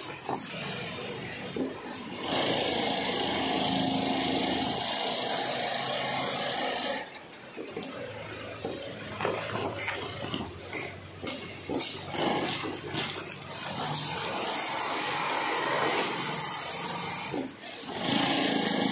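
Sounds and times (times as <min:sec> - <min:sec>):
sewing machine running: 0:00.0 - 0:07.1, 0:11.7 - 0:18.9.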